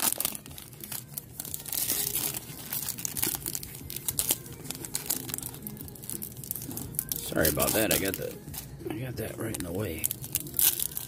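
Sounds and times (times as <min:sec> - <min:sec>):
foil wrapper crinkling and tearing: 0:00.0 - 0:11.0.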